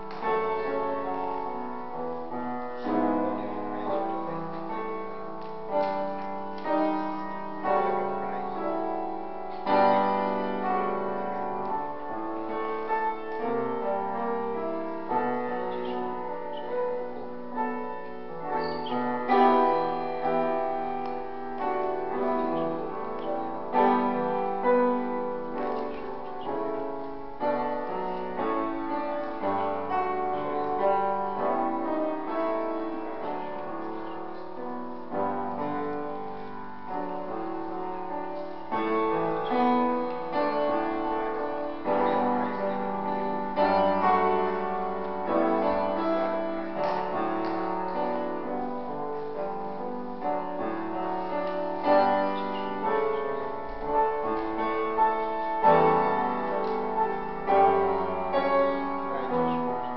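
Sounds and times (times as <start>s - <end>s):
slow piano music: 0.0s - 59.9s.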